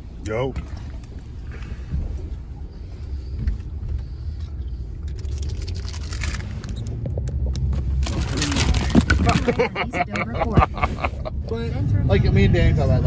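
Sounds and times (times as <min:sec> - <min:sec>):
car cabin rumble: 0:00.0 - 0:13.0
plastic bag crinkling: 0:05.1 - 0:06.8, 0:07.9 - 0:09.6.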